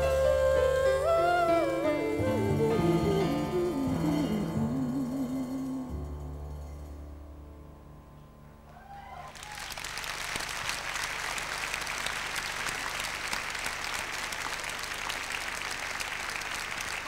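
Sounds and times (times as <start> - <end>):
audience applauding: 9.1 - 17.0.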